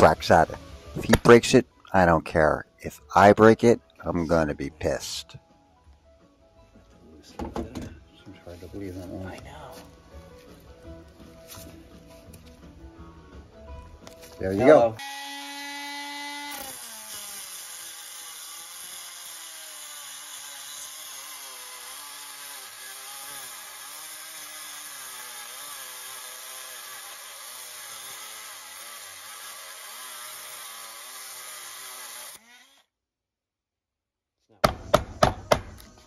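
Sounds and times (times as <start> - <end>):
cut-off wheel grinding metal: 15.0 - 32.9
rotary tool motor whine: 15.0 - 32.9.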